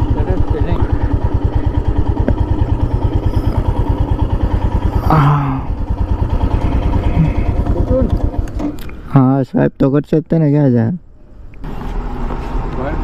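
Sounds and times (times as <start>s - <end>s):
motorcycle engine thumping: 0.0s - 9.1s.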